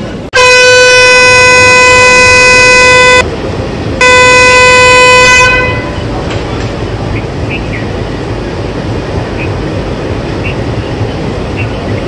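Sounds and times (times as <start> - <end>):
locomotive horn blasts: 0.4 - 3.2, 4.0 - 6.1.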